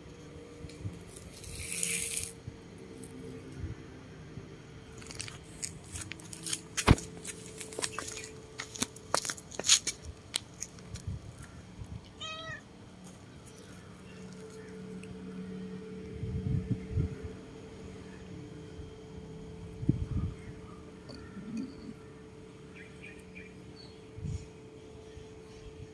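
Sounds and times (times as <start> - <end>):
faint steady hum: 0.0 - 25.9
cat meowing: 12.2 - 12.6.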